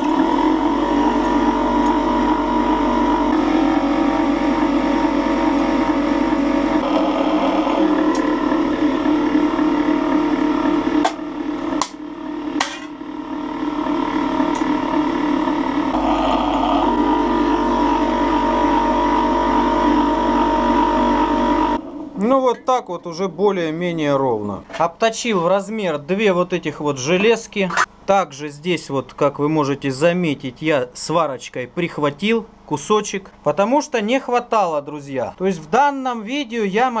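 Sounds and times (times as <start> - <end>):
slip-roll machine running: 0.0 - 12.8.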